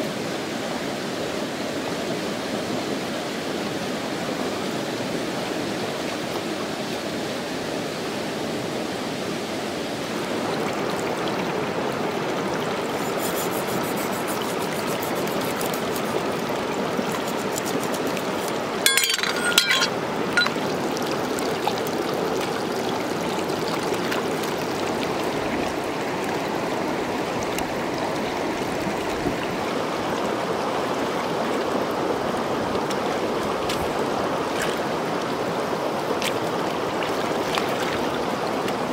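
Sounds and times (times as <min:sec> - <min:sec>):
stream running over rocks: 0:00.0 - 0:38.9
sharp clicks and splashes: 0:13.0 - 0:20.7.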